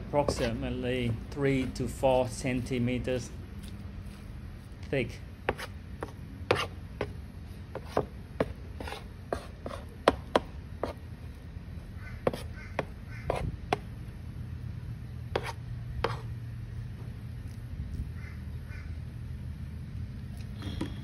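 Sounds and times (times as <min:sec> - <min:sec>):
metal trowel scraping damp mash: 0:00.2 - 0:02.0.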